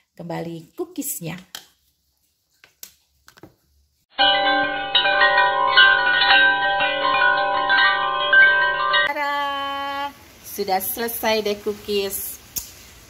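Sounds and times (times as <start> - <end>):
chiming bell-like jingle: 4.2 - 9.1.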